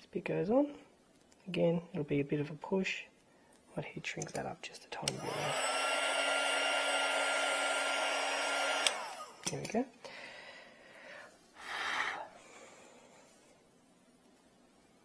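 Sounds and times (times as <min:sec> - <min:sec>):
heat gun blowing with motor whine: 0:05.0 - 0:09.5.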